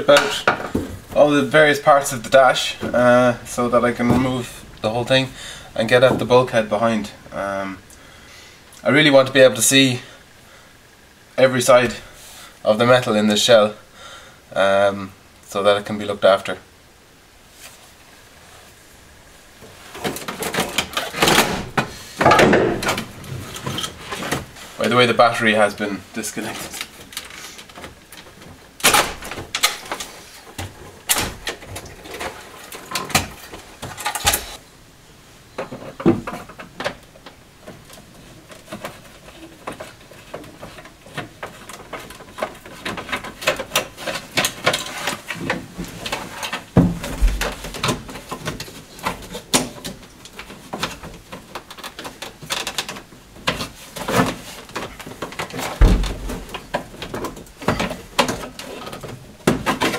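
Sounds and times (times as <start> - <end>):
dull thumps: 0.1 - 7.3, 46.8 - 48.3, 54.1 - 58.5.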